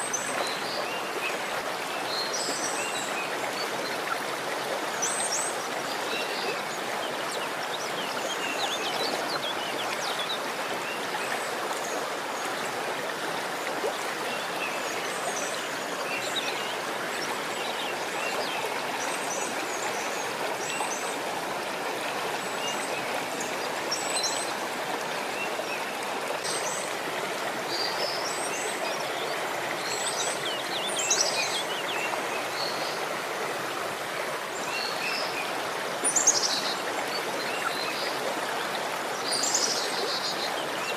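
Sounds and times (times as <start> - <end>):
running water: 0.0 - 40.9.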